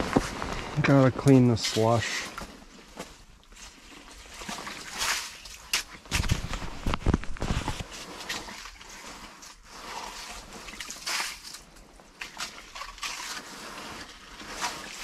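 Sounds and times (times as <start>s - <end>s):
skimmer scraping slush: 3.6s - 15.0s.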